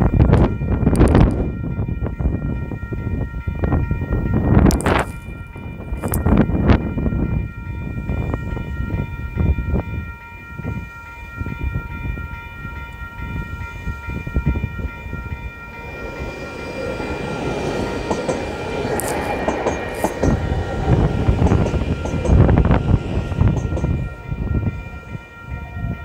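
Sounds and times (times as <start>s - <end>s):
electric train rumble: 0.0s - 26.0s
level crossing warning bells: 0.0s - 26.0s
clicking wheel noise: 18.1s - 20.4s.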